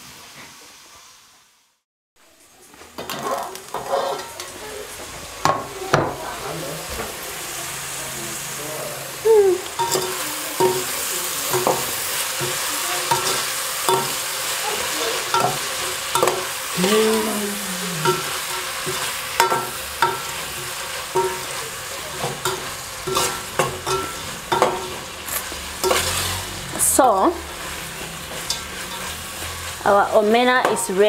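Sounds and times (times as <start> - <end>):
food sizzling: 0.0 - 31.0
metal spoon scraping a pot: 3.1 - 4.4, 12.4 - 14.3, 22.4 - 26.4.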